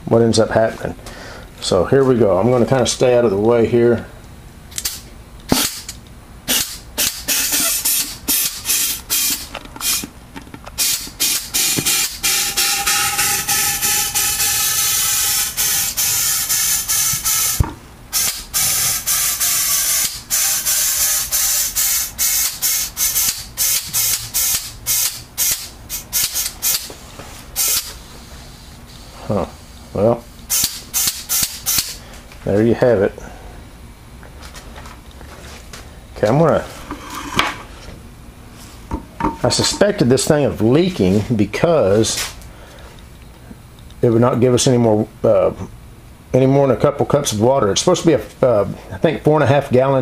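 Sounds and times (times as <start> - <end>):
compressed air hissing: 6.5 - 10.1, 10.8 - 32.2.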